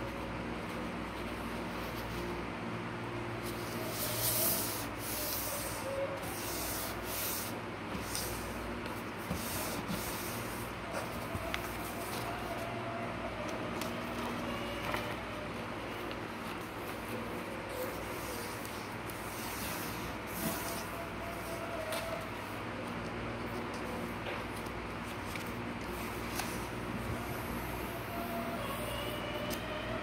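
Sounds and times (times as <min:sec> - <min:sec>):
fingers rubbing paper folds: 0:03.0 - 0:30.0.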